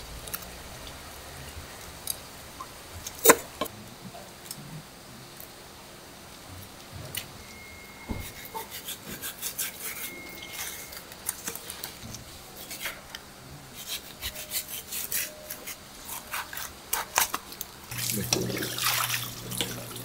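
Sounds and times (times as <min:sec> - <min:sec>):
knife scraping fish fillets: 0:08.2 - 0:12.0, 0:12.6 - 0:17.4.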